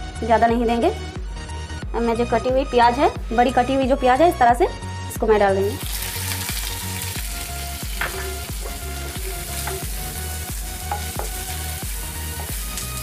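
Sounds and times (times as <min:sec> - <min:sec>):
quiet background music with beat: 0:00.0 - 0:13.0
onions sizzling in a frying pan: 0:05.7 - 0:13.0
spatula stirring in a pan: 0:07.9 - 0:13.0.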